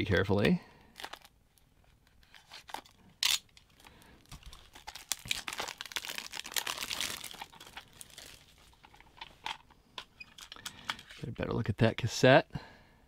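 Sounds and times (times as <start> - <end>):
card insert crinkling: 1.0 - 9.6.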